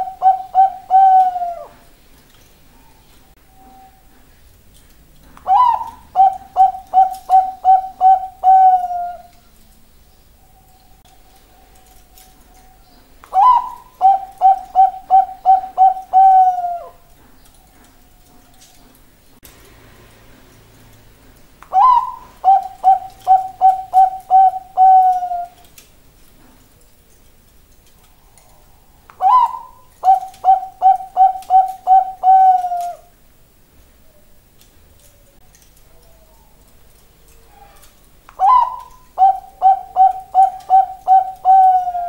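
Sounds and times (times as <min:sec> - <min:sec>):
dove cooing: 0:00.0 - 0:02.0, 0:05.4 - 0:09.4, 0:13.3 - 0:18.4, 0:21.7 - 0:25.7, 0:29.2 - 0:33.1, 0:37.4 - 0:42.0.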